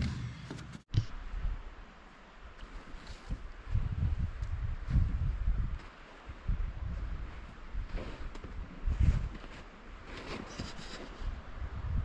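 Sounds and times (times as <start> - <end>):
wind buffeting microphone: 3.1 - 12.0.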